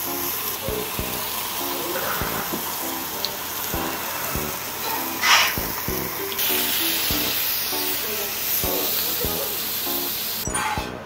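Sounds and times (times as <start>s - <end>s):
lounge music with steady beat: 0.0s - 11.0s
pork sizzling on a griddle: 0.0s - 11.0s.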